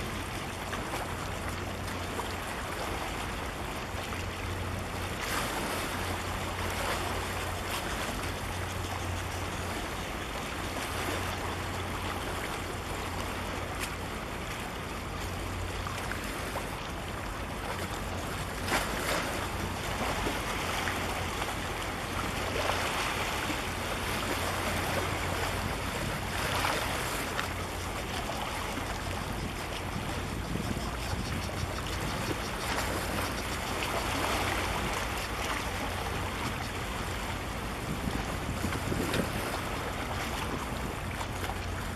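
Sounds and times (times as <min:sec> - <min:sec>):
low steady rumble: 0:00.0 - 0:41.9
sea water washing: 0:00.0 - 0:41.9
wind buffeting microphone: 0:27.9 - 0:41.9.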